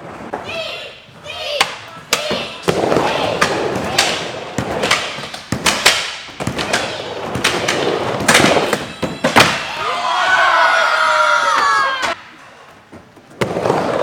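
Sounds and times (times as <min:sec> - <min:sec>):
skateboard wheels rolling on wood: 0:00.0 - 0:09.5, 0:12.6 - 0:14.0.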